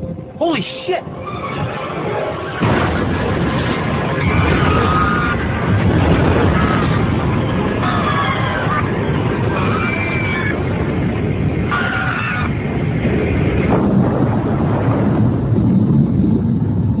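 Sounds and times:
airliner low rumbling roar: 0.0 - 17.0
passengers screaming: 0.8 - 10.6.

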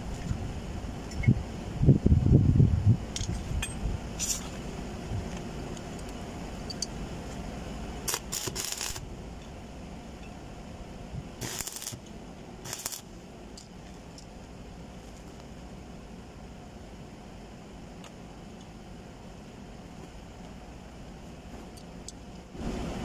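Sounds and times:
welding arc hissing crackle: 5.8 - 9.2, 11.1 - 14.2.

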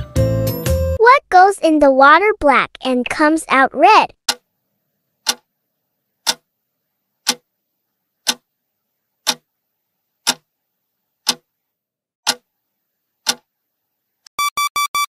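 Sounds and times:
clock ticking: 5.2 - 5.5, 6.2 - 6.5, 7.2 - 7.4, 8.2 - 8.4, 9.2 - 9.4, 10.2 - 10.4, 11.2 - 11.5, 12.2 - 12.5, 13.2 - 13.4.

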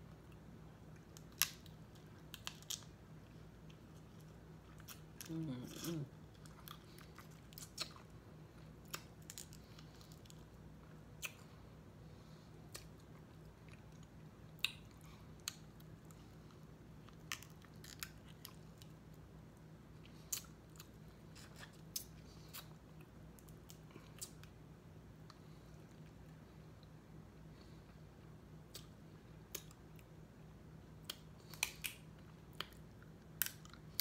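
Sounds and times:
steady low hum: 0.0 - 34.0
faint chewing: 0.1 - 11.7, 12.6 - 19.2, 20.0 - 24.6.

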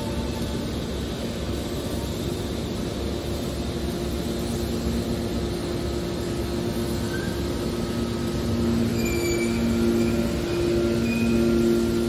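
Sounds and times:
hydraulic power unit humming: 0.0 - 12.0.

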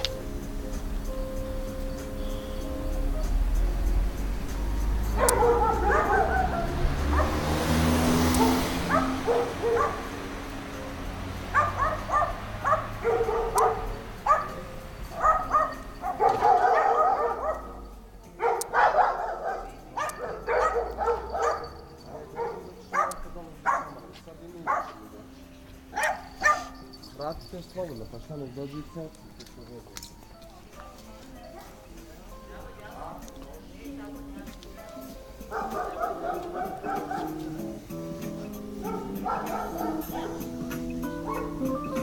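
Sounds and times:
small dog yapping: 5.2 - 7.5, 8.3 - 10.1, 11.5 - 17.8, 18.4 - 24.0, 26.0 - 27.0, 34.8 - 37.6, 38.8 - 40.6, 41.2 - 41.8.

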